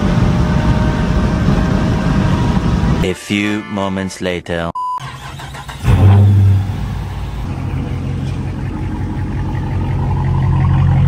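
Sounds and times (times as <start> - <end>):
car engine starting and idling: 5.0 - 11.0.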